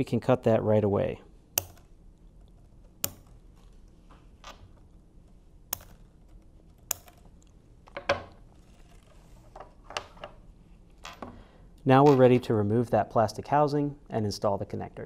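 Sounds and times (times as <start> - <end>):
scissors snipping wire: 1.6 - 3.4.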